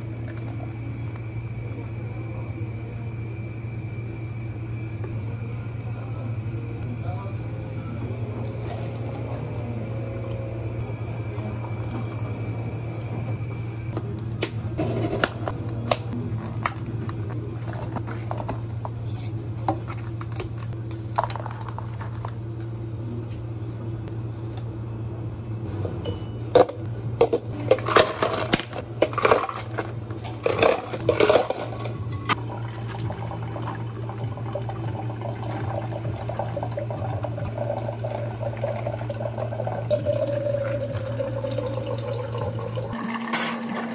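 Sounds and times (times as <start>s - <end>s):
low hum: 0.0s - 43.9s
ice and cups clattering: 26.6s - 33.1s, 40.0s - 43.9s.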